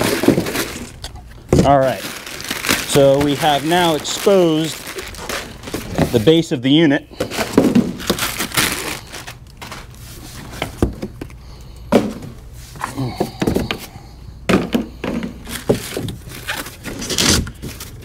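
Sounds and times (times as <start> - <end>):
plastic wrap rustling: 0.0 - 11.2, 15.4 - 18.0.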